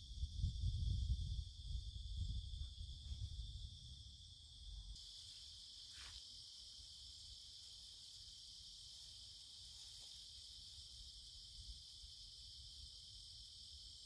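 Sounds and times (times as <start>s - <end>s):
wind rumble: 0.0s - 5.0s
insects chirring: 0.0s - 14.0s.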